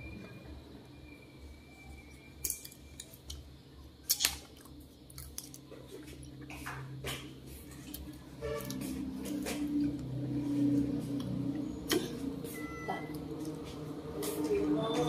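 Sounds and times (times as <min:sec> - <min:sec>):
wet eating clicks and smacks: 0:04.0 - 0:08.8.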